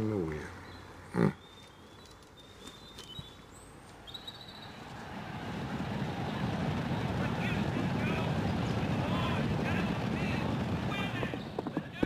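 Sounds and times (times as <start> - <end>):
low rumbling of horse race: 4.5 - 12.0.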